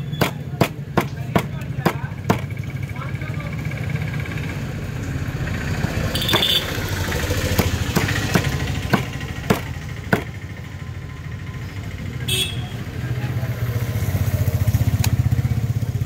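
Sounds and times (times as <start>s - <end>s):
knife chopping on wooden block: 0.2s - 2.5s, 6.2s - 10.4s.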